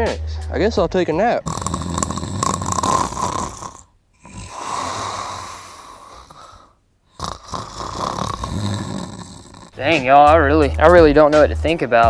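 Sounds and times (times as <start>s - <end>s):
man snoring: 1.4s - 10.0s.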